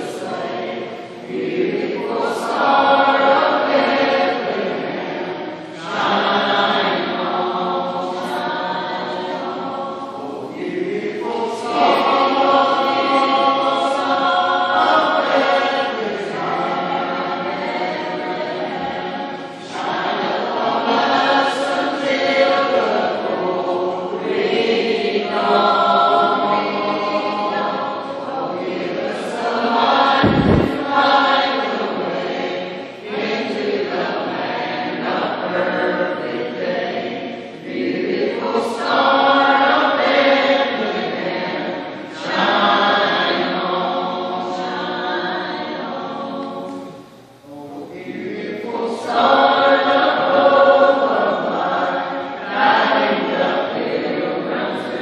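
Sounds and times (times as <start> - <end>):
mixed choir singing: 0.0 - 55.0
low thump: 30.2 - 30.9.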